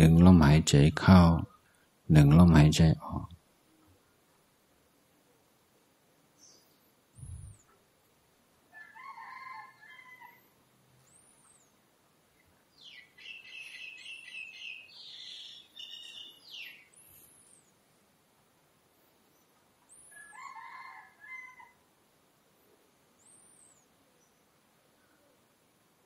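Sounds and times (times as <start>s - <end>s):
rooster crowing: 8.7s - 10.6s, 20.1s - 21.8s
small birds chirping: 11.0s - 17.8s, 22.6s - 25.3s
high bird calls: 12.8s - 17.6s.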